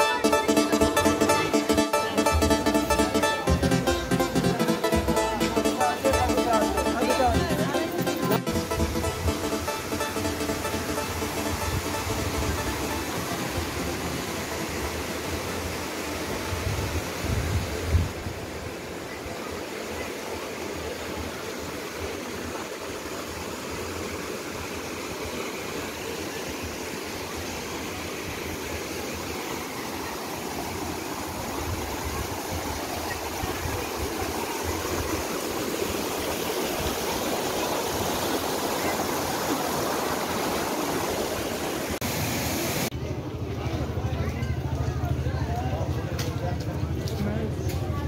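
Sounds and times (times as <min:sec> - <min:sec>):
stream rushing over rocks: 0:09.0 - 0:42.9.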